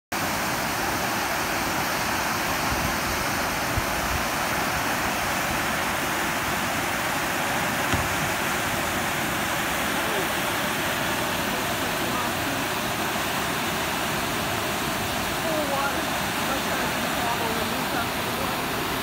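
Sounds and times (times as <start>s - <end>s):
river water rushing over weir: 0.2s - 19.0s
brief knocks: 7.9s - 8.4s.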